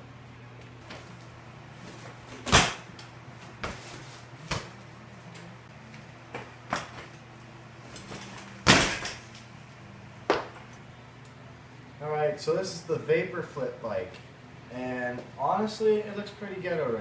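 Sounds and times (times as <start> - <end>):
bike knocking on concrete: 10.3 - 10.6.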